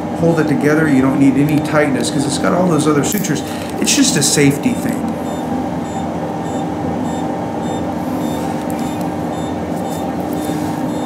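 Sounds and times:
steady machine hum: 0.0s - 11.0s
patient monitor beeping: 3.4s - 11.0s.

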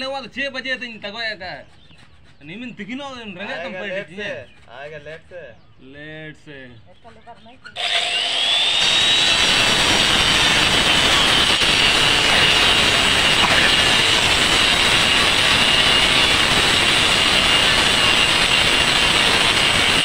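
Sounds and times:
electric cutter cutting bamboo: 7.8s - 20.0s.

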